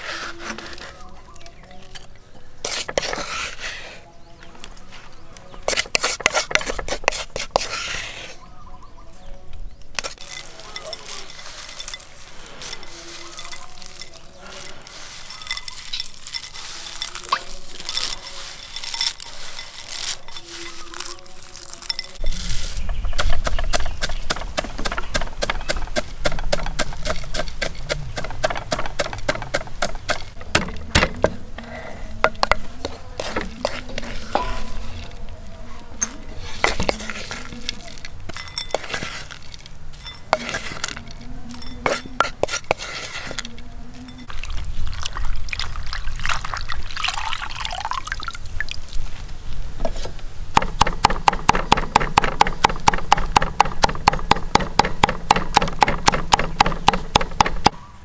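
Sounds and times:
utensil clinking against pot: 10.0s - 22.3s, 36.0s - 43.4s.

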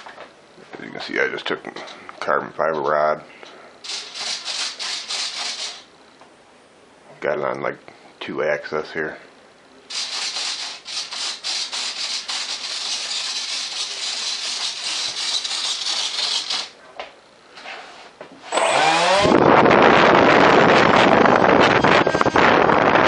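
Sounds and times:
electric ducted fan whine: 0.0s - 23.0s
rubbing and hissing: 3.8s - 5.9s, 9.9s - 16.8s.

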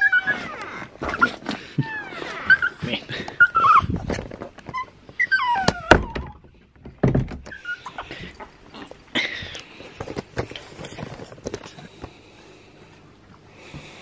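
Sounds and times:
dogs whining: 0.0s - 4.0s, 4.6s - 6.4s, 7.4s - 9.4s.

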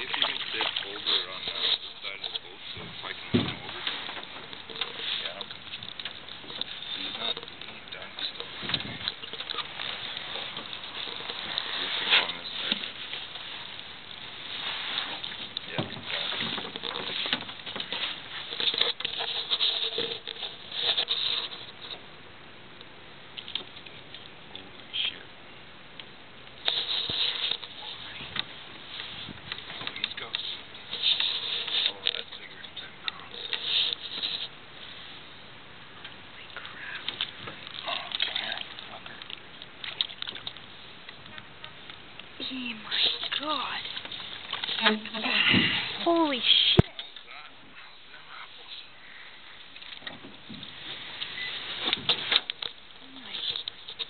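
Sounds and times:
fish splashing water: 0.0s - 1.5s, 36.8s - 41.8s
microphone handling noise: 8.2s - 13.7s, 26.6s - 32.9s.

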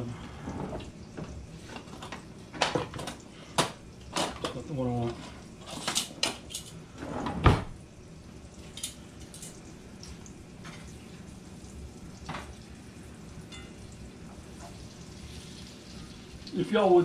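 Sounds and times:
kitchen utensils clinking: 1.6s - 6.8s, 8.6s - 9.6s.

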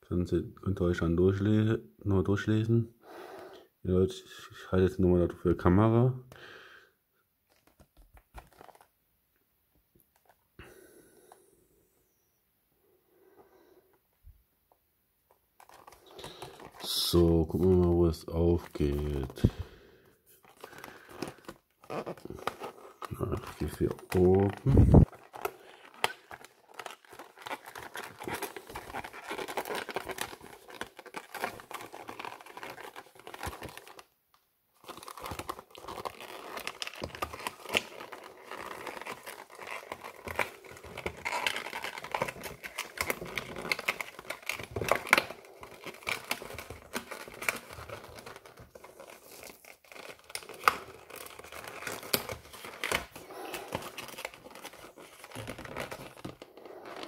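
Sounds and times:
cardboard box crinkling and tearing: 7.5s - 8.9s, 15.6s - 17.9s, 20.4s - 34.1s, 34.8s - 57.0s.

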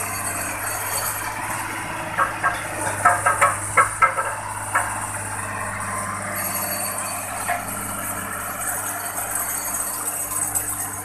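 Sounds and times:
road roller humming: 0.0s - 11.0s
sharp clinks and knocks: 2.2s - 5.2s.

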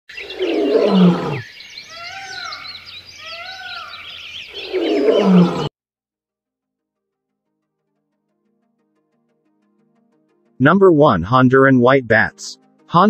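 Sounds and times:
deep animal roar: 0.1s - 2.7s, 4.5s - 5.7s
birds chirping: 0.1s - 5.7s.

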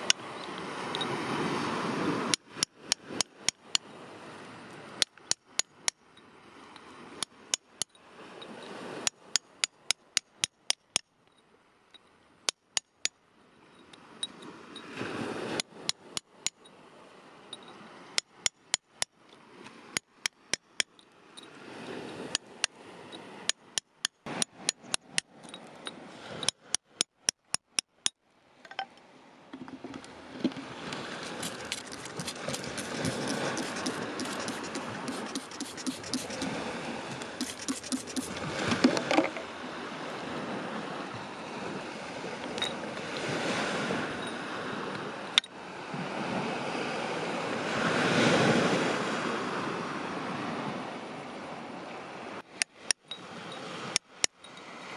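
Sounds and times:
hammer striking metal chisel: 9.1s - 11.1s, 12.5s - 13.2s, 17.6s - 19.1s, 23.5s - 25.3s, 26.4s - 28.9s, 31.4s - 36.5s, 37.4s - 38.3s.

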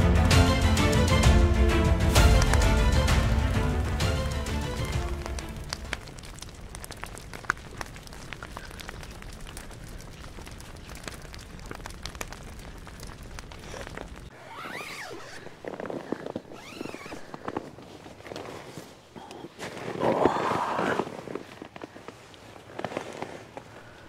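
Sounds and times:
campfire crackling and popping: 2.0s - 14.3s.

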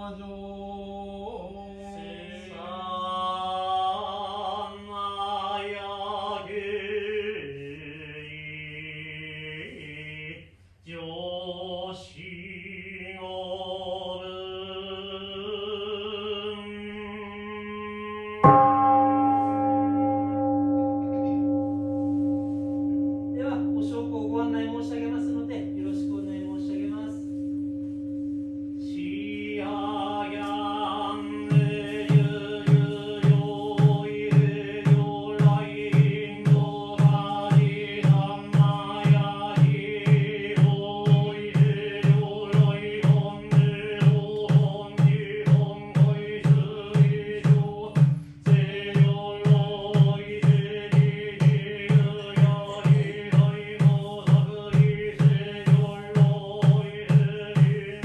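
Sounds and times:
monotone chanting voice: 0.0s - 58.0s
bowl bell ringing: 18.4s - 40.3s
drum beaten in regular rhythm: 29.5s - 58.0s.

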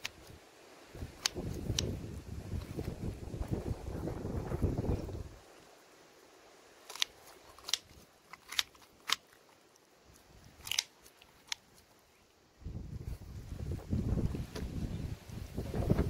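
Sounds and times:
scissors snipping: 1.0s - 1.9s, 10.6s - 11.6s.

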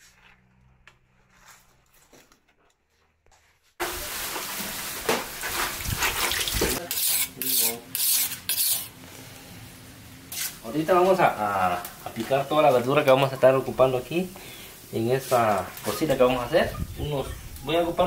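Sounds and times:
running water: 3.8s - 6.8s
fish being cut: 6.3s - 8.9s
knife on sharpening stone: 6.8s - 8.9s.

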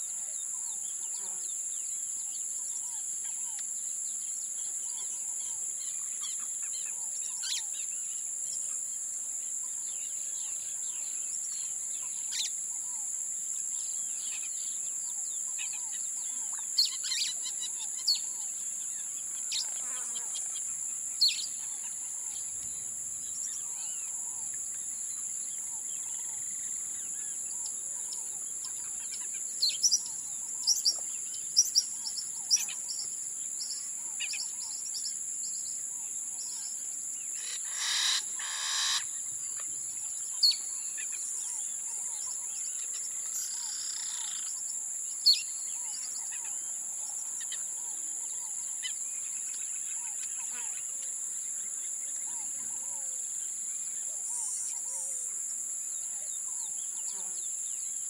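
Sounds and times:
high-pitched insect drone: 15.7s - 50.9s
loud bird calls: 37.4s - 39.2s.

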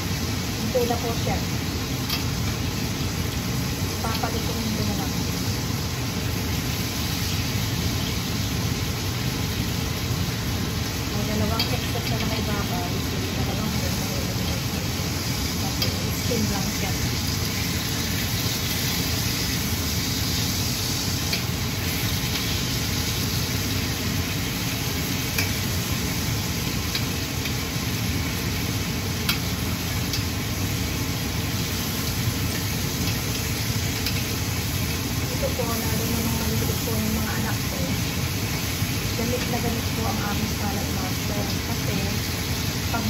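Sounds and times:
meat sizzling in a pan: 0.0s - 43.0s
metal utensil clicking on pan: 2.1s - 2.3s, 11.6s - 12.5s, 21.3s - 21.5s, 25.3s - 25.6s, 29.2s - 29.5s, 34.0s - 34.3s.

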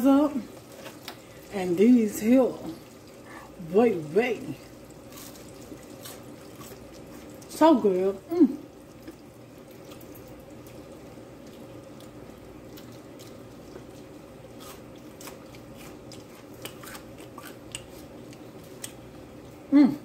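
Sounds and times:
steady low hum: 0.0s - 20.0s
person chewing crunchy food: 4.7s - 7.5s, 8.7s - 19.7s.

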